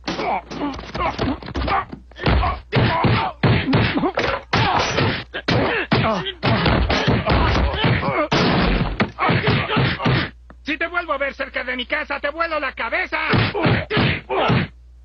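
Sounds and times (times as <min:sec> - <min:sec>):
punching and whacking hits: 0:00.0 - 0:10.3, 0:13.3 - 0:14.7
person grunting in pain: 0:00.1 - 0:08.4, 0:09.0 - 0:10.3, 0:13.3 - 0:14.7.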